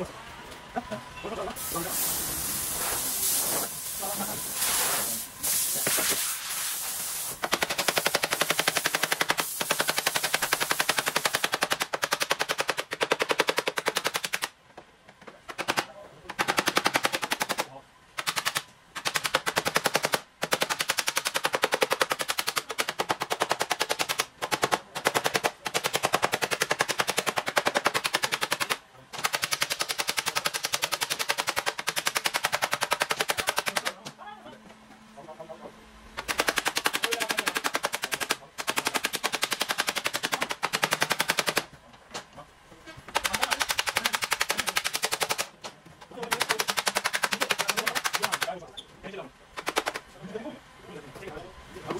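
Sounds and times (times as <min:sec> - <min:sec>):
heat gun hissing: 0:01.6 - 0:11.4.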